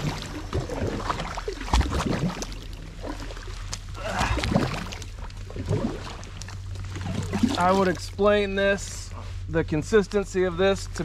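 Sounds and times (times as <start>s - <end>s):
paddle sloshing through weedy water: 0.0s - 8.4s.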